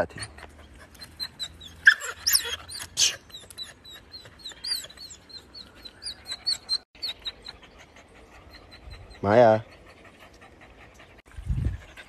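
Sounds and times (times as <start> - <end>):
dog whining and yelping: 0.0 - 11.2
high chirping: 0.8 - 9.2.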